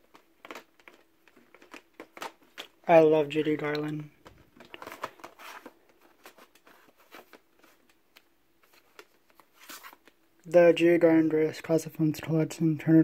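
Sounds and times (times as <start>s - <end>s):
plastic cases clicking and rustling: 0.0s - 2.8s, 3.4s - 10.2s.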